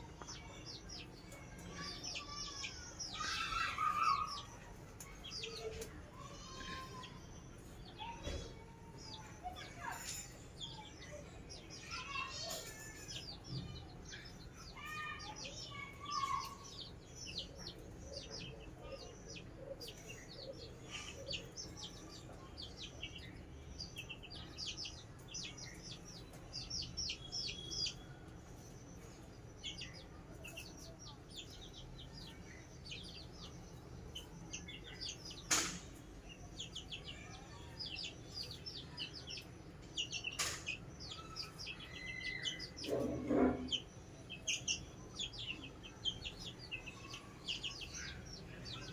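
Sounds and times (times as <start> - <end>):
chicks peeping: 0.0 - 48.9.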